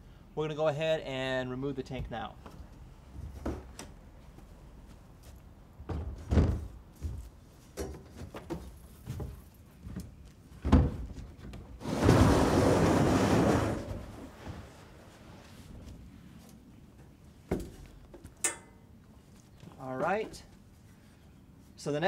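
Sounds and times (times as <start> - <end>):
plastic tank scraping slide: 11.8 - 14.9.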